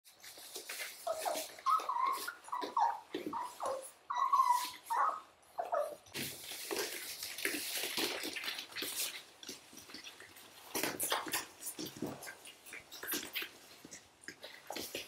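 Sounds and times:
paws scrambling on hard floor: 0.1 - 5.1, 5.7 - 15.0
puppies whimpering: 1.0 - 6.1.

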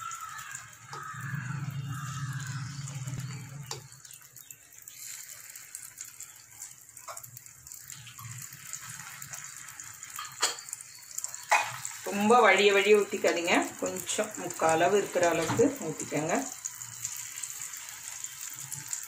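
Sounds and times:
batter sizzling: 0.0 - 19.0
low hum: 1.0 - 4.0.

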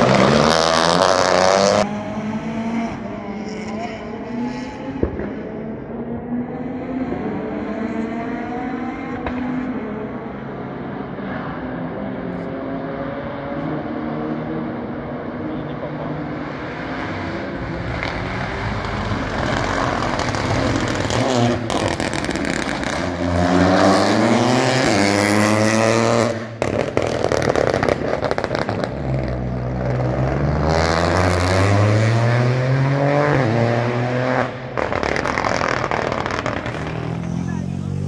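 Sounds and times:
car engine accelerating hard: 0.0 - 38.0
exhaust crackles and pops: 17.8 - 23.2, 26.5 - 30.4, 34.7 - 37.2.

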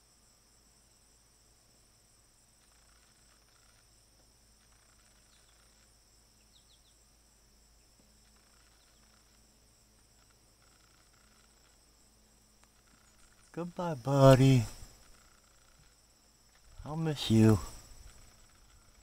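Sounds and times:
insect trill: 0.0 - 19.0
faint high chirps: 4.6 - 7.0.

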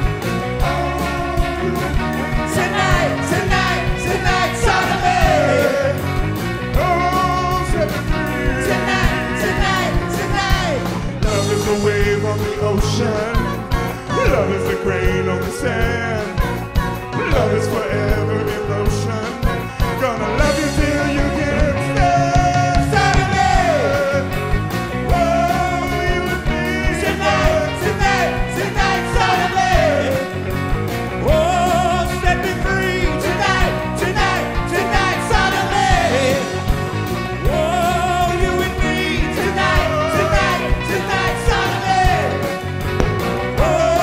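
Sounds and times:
live rock band playing: 0.0 - 44.0
group of singers singing: 0.6 - 30.5, 31.2 - 44.0.

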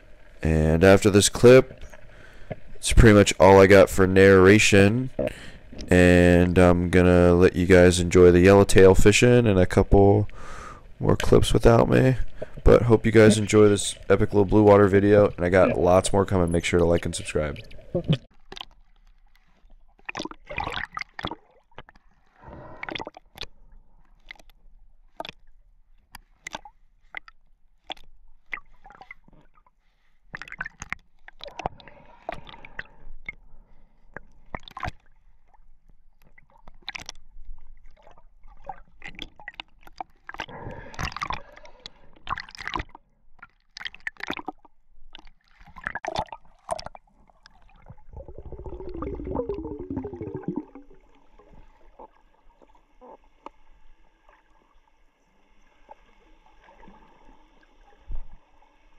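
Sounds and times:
underwater gurgling and sloshing: 0.0 - 58.9
sharp underwater clicks: 19.4 - 22.0, 22.8 - 25.5, 26.1 - 29.4, 34.1 - 35.1, 36.2 - 37.3, 37.9 - 47.7.

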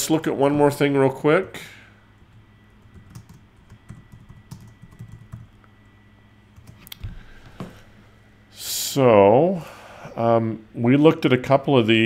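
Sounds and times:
keyboard typing: 2.8 - 5.5, 6.6 - 7.0.

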